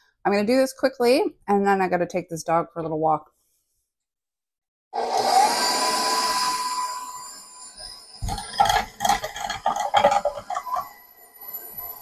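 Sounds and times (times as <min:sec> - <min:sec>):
mixer motor whining: 0:05.0 - 0:11.0.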